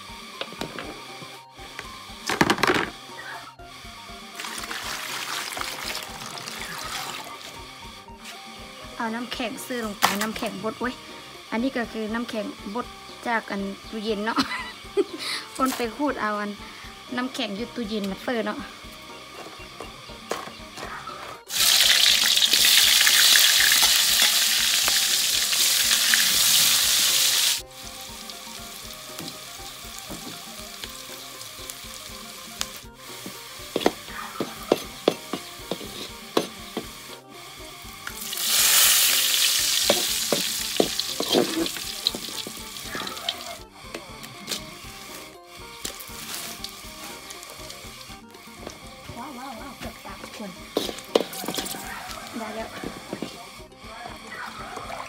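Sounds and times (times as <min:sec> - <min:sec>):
shallots sizzling in hot oil: 0:03.9 - 0:20.8, 0:21.5 - 0:53.8
stirring clicks: 0:37.9 - 0:49.1, 0:50.2 - 0:53.5.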